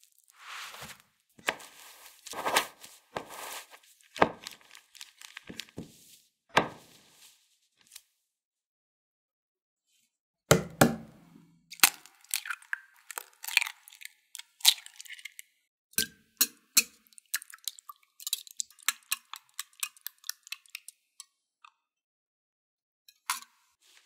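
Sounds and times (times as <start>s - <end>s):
eggs knocked and cracked: 4.1s - 5.9s.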